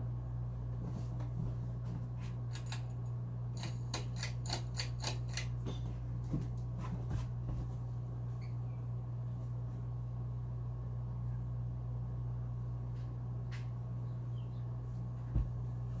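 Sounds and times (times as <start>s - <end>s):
ceiling fan humming: 0.0s - 16.0s.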